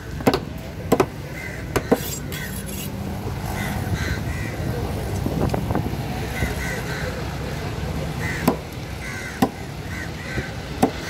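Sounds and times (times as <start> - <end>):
street traffic rumble: 0.0 - 11.0
machete chopping fish on wood: 0.2 - 1.1, 1.7 - 2.4, 8.4 - 8.7, 10.8 - 11.0.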